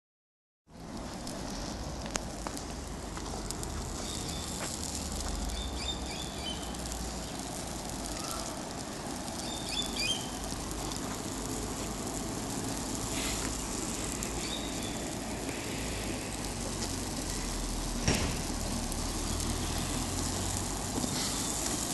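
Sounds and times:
flames crackling: 0.7s - 21.9s
birds chirping: 4.0s - 4.6s, 5.4s - 7.4s, 9.3s - 10.4s, 14.3s - 15.2s.

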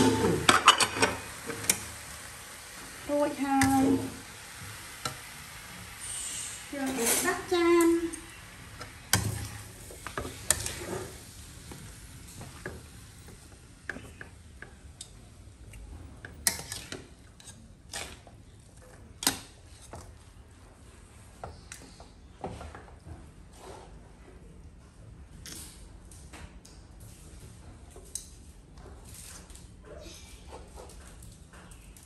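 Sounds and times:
low sizzle: 0.0s - 23.8s
spatula scraping a steel wok: 8.8s - 11.4s, 16.4s - 18.3s.

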